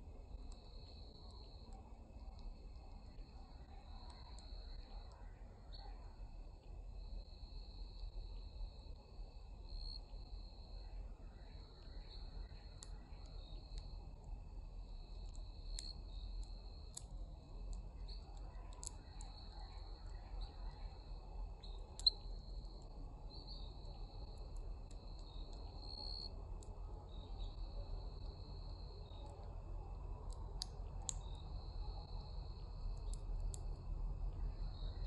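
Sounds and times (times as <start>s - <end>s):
low ambient rumble: 0.0s - 35.0s
crickets trilling: 0.2s - 35.0s
sharp clicks: 30.2s - 31.4s, 32.8s - 33.8s.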